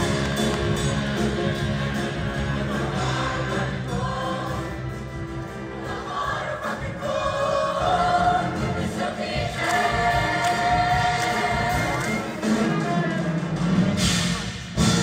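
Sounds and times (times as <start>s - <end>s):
musical accompaniment: 0.0s - 15.0s
choir singing in harmony: 1.8s - 12.6s.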